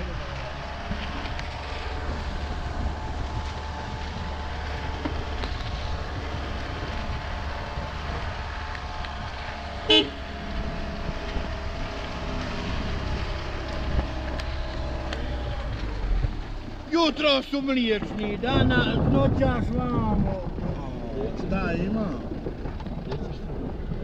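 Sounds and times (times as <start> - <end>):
car engine hum: 0.0 - 24.0
car horn toot: 9.8 - 10.5.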